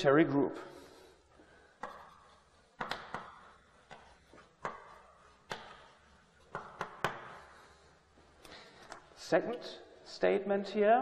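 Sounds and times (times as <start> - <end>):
chalk scratching on blackboard: 1.8 - 7.6
chalk tapping on blackboard: 1.8 - 7.6.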